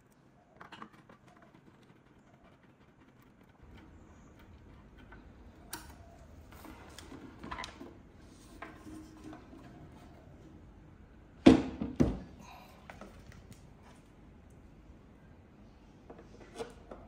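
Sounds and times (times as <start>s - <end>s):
handling clicks and rustles: 0.0s - 10.3s.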